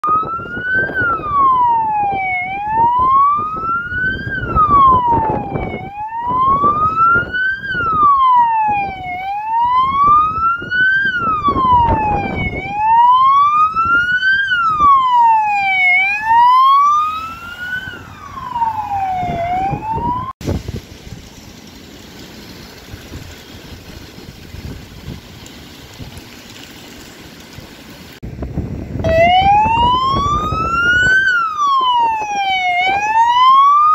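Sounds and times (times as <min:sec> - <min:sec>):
wailing siren: 0:00.0 - 0:20.4, 0:29.0 - 0:33.9.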